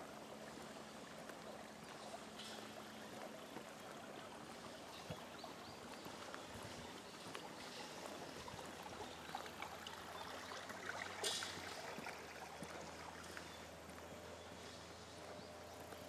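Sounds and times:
running water: 0:00.0 - 0:16.0
footsteps on asphalt: 0:03.1 - 0:09.6, 0:11.2 - 0:16.0.

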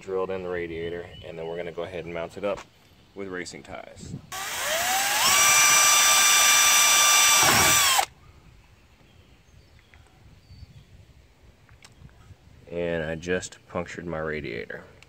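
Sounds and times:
power drill boring through plastic: 0:04.3 - 0:08.1.

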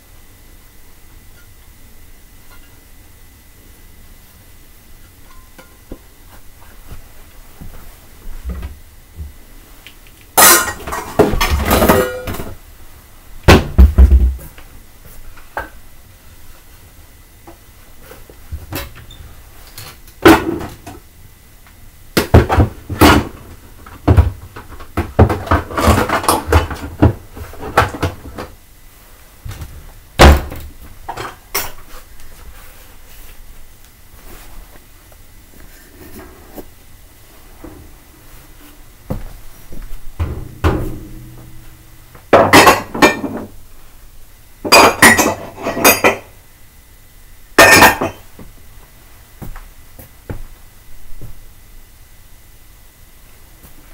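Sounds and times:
plates and crockery clattering: 0:10.4 - 0:12.6, 0:42.3 - 0:43.5, 0:44.7 - 0:46.3, 0:47.6 - 0:48.3.

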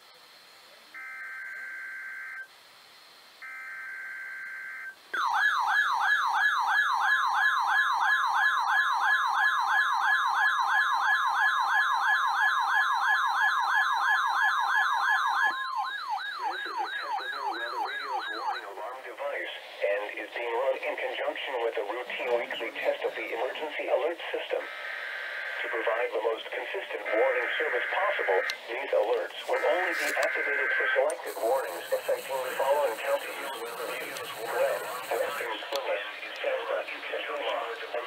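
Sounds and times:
fast warbling siren: 0:03.4 - 0:19.4, 0:27.1 - 0:28.5, 0:29.5 - 0:35.6
harsh digital screeches: 0:29.4 - 0:35.5
steady alert tone: 0:31.2 - 0:35.5.

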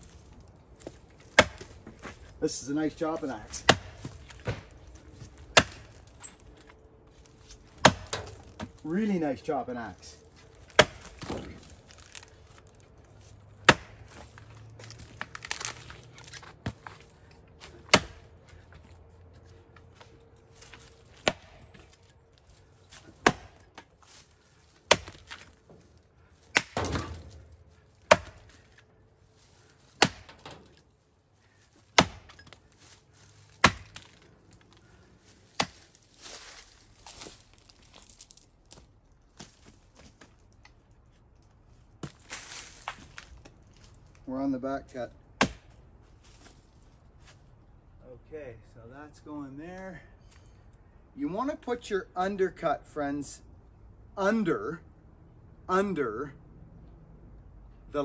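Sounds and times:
axe chopping tree trunk: 0:00.8 - 0:02.0, 0:03.4 - 0:06.1, 0:07.7 - 0:08.8, 0:10.6 - 0:12.3, 0:13.6 - 0:14.2, 0:15.2 - 0:18.3, 0:20.6 - 0:22.0, 0:22.9 - 0:24.2, 0:24.8 - 0:25.6, 0:26.4 - 0:27.4, 0:28.0 - 0:28.8, 0:29.9 - 0:30.7, 0:31.9 - 0:32.9, 0:33.5 - 0:34.2, 0:35.5 - 0:36.6, 0:42.0 - 0:43.3, 0:45.4 - 0:45.8.

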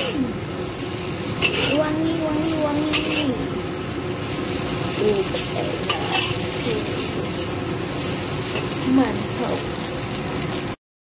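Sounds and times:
noodles sizzling in a wok: 0:00.0 - 0:10.8
metal spatula scraping a pan: 0:01.3 - 0:03.4, 0:04.2 - 0:08.8.

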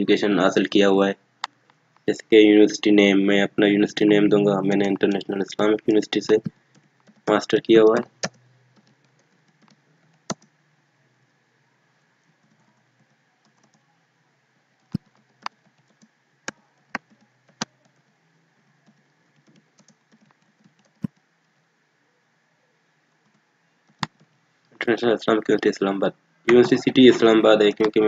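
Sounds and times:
faint low hum: 0:00.0 - 0:28.0
keyboard typing: 0:04.7 - 0:10.6, 0:12.2 - 0:13.8, 0:14.8 - 0:21.6, 0:23.2 - 0:24.3, 0:26.5 - 0:28.0.

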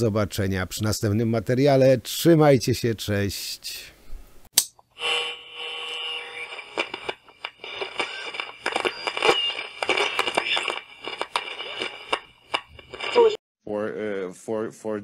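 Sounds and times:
static crackle of sharp clicks: 0:06.3 - 0:13.4.

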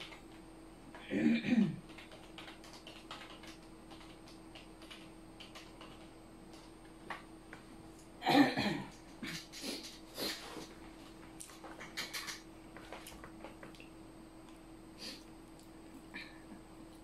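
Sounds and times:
typing on keyboard: 0:00.0 - 0:00.4, 0:01.8 - 0:07.2, 0:11.6 - 0:13.8
person coughing: 0:01.0 - 0:01.8, 0:08.2 - 0:09.4.

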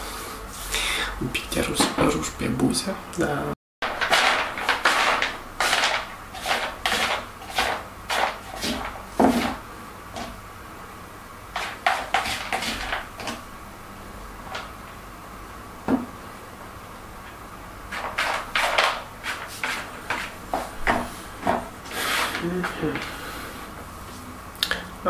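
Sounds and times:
rummaging through small hard objects: 0:03.8 - 0:09.6.

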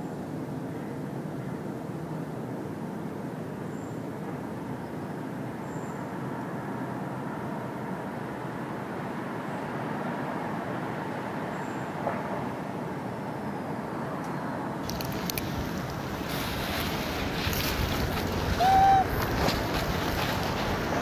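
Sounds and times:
outdoor background noise: 0:00.0 - 0:21.0
wind buffeting the microphone: 0:14.8 - 0:21.0.

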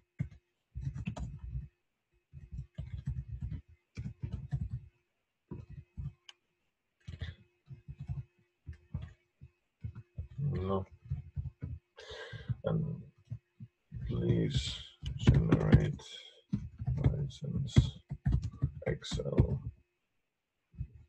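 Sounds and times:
typing on computer keyboard: 0:00.2 - 0:01.7, 0:02.4 - 0:04.9, 0:07.0 - 0:09.2, 0:15.0 - 0:19.7.

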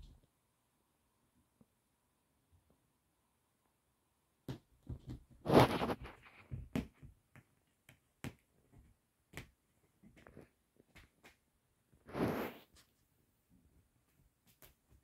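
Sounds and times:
cat claws scratching fabric: 0:04.9 - 0:13.0
fabric rustling: 0:05.2 - 0:06.6.

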